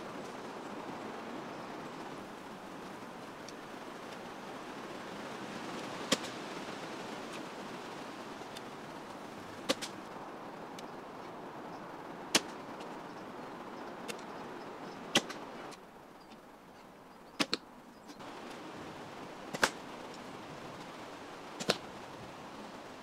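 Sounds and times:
woodland hiss: 0:00.0 - 0:23.0
bow string snapping: 0:17.4 - 0:17.6, 0:19.5 - 0:19.8, 0:21.6 - 0:21.8.

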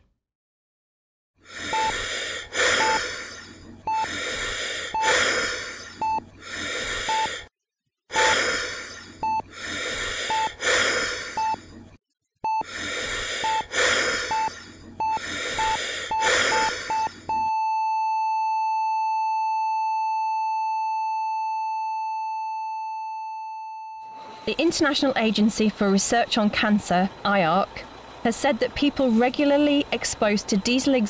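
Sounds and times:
laboured gasping breaths: 0:01.4 - 0:07.5, 0:08.1 - 0:11.8, 0:12.5 - 0:17.5
heart monitor beeps: 0:01.7 - 0:02.1, 0:02.8 - 0:04.2, 0:04.9 - 0:07.4, 0:08.2 - 0:11.8, 0:12.4 - 0:24.6.

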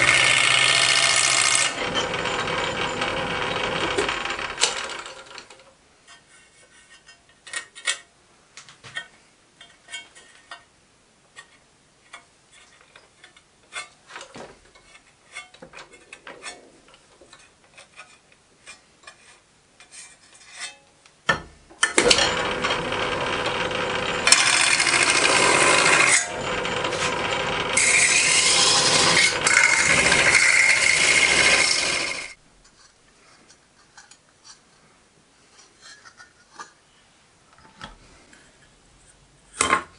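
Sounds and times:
lathe running: 0:00.0 - 0:05.4, 0:22.0 - 0:32.4
tool scraping on copper: 0:24.2 - 0:33.0.

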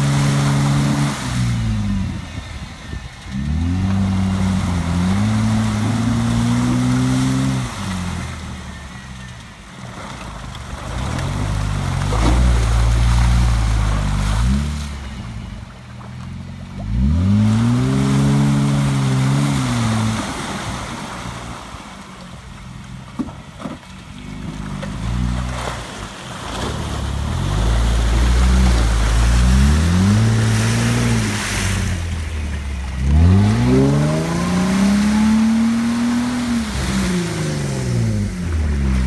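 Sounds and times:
engine revving: 0:00.0 - 0:09.4, 0:16.7 - 0:21.4, 0:26.5 - 0:39.0
tyres churning through mud: 0:00.0 - 0:39.0.

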